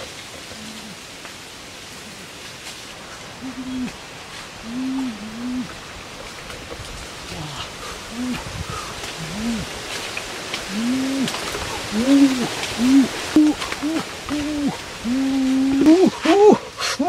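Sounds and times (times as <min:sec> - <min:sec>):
man exclaiming ooh: 0:12.0 - 0:17.0.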